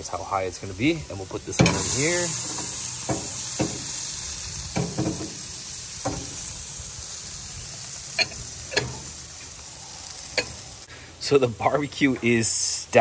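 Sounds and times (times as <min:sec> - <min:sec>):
patties sizzling on a grill: 0:00.0 - 0:13.0.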